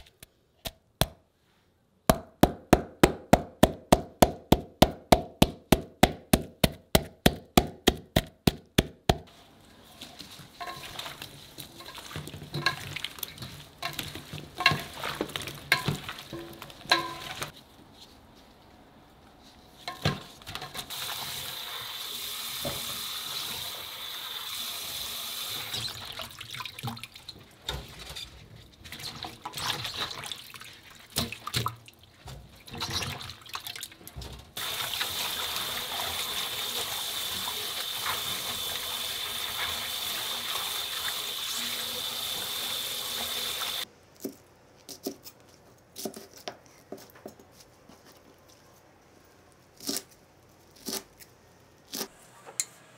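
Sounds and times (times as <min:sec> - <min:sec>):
water splashing and swishing: 0:09.6 - 0:17.6, 0:28.8 - 0:34.0.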